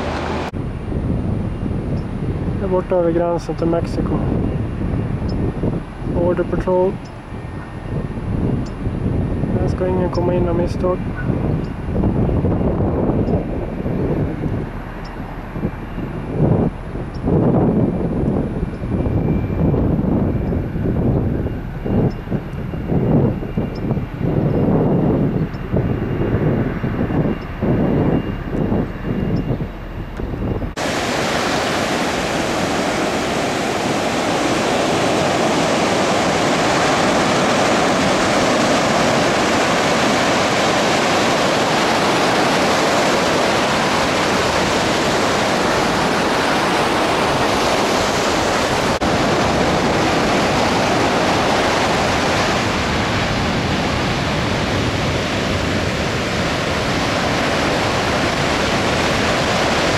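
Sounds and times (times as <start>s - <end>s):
surf washing on beach: 0.0s - 28.2s, 30.7s - 59.9s.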